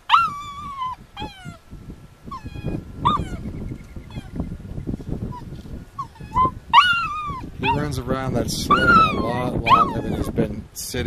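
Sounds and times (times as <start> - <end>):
puppy whining and crying: 0.0 - 1.6, 2.3 - 4.5, 5.3 - 7.9, 8.7 - 10.3.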